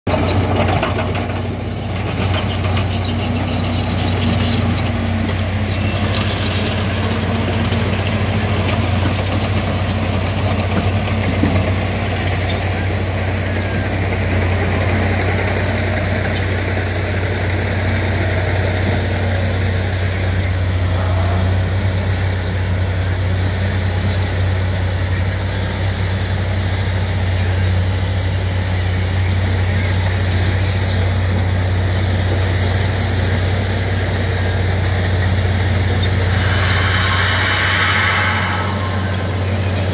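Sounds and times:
heavy low engine drone: 0.1 - 39.9
drill rushing into rock: 35.3 - 39.9.

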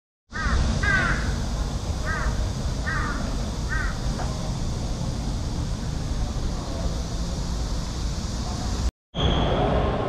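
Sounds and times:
crow cawing: 0.4 - 1.4, 2.0 - 4.0.

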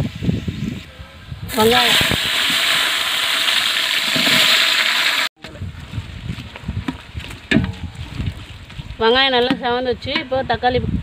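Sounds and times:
onions sizzling in hot oil: 1.5 - 5.3.

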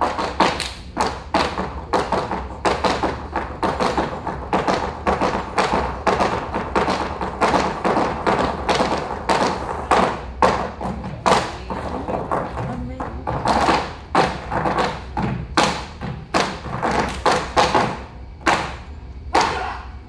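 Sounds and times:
flamenco heel stamps and taps: 0.0 - 19.7.

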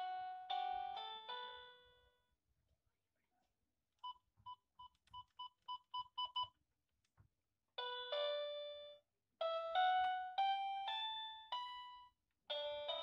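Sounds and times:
electronic keyboard notes: 7.8 - 13.0.

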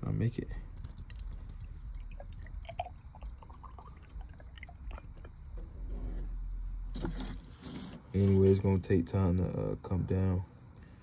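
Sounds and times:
fluid pouring with gurgles: 0.7 - 5.6.

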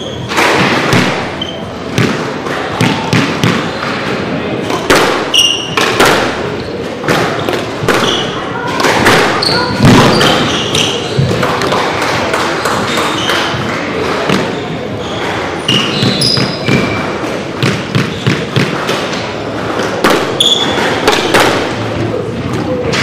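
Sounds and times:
squash ball knocks: 0.3 - 4.0, 4.6 - 10.5, 15.7 - 19.2, 19.8 - 21.8
shoes squeaking on wooden floor: 5.3 - 5.8, 9.0 - 18.6, 20.4 - 21.1.

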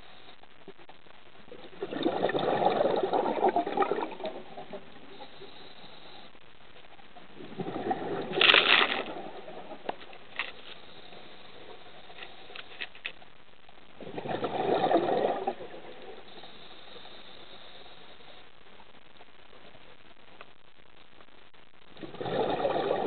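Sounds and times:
underwater breath bubbles gurgling: 1.5 - 6.3, 7.4 - 10.0, 14.0 - 18.4, 22.0 - 23.0
faint clicks: 20.3 - 21.3.

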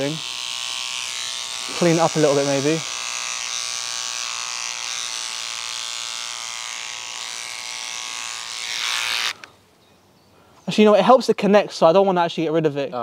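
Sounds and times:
electric beard trimmer buzzing: 0.0 - 9.5.

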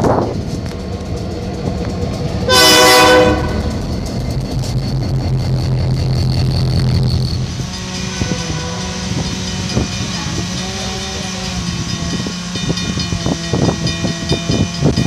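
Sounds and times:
low diesel engine drone: 0.0 - 15.0
passing train rumble: 0.0 - 15.0
diesel locomotive horn blast: 2.4 - 3.8, 7.7 - 11.9.

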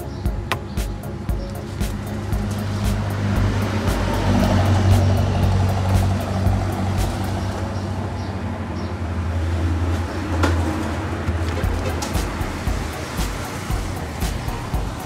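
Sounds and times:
background music with low bass: 0.0 - 8.5, 11.5 - 15.0.

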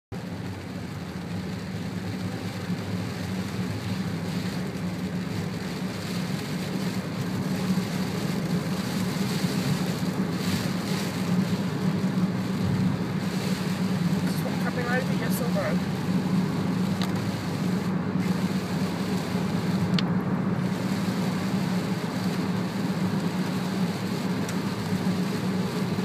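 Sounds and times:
car engine and road hum: 0.1 - 26.0
rain on car: 0.1 - 26.0
tyres hissing on wet road: 0.2 - 26.0.

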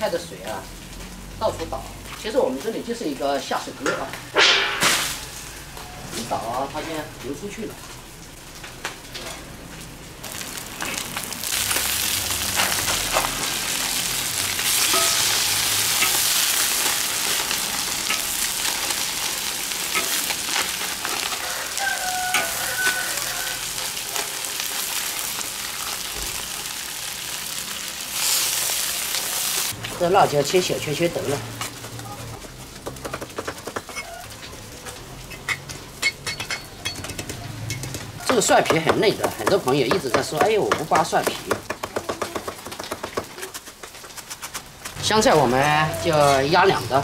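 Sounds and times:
fish sizzling in hot oil: 0.0 - 36.9
metal spatula scraping wok: 10.8 - 26.9, 43.5 - 47.0.

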